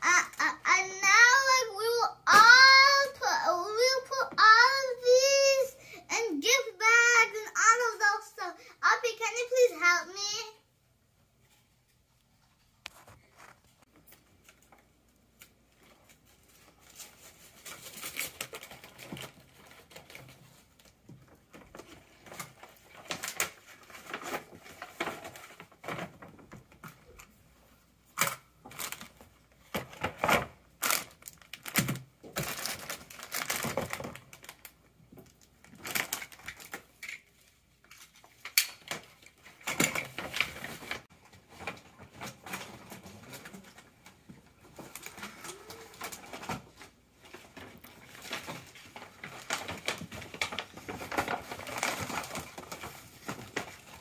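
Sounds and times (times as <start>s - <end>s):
foil bags crinkling: 13.1s - 26.6s, 28.7s - 54.0s
clicks and knocks of items: 28.1s - 30.6s, 31.2s - 54.0s.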